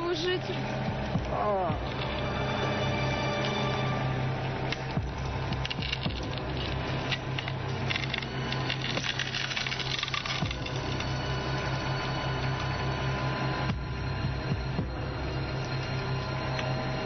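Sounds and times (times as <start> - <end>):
road roller engine humming: 0.0 - 17.0
broken glass crunching: 4.8 - 12.1.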